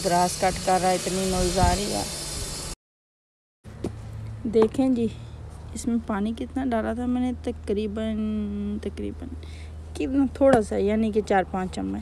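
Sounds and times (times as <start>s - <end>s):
lawnmower drone: 0.0s - 2.8s
steady noisy hiss: 0.0s - 2.8s.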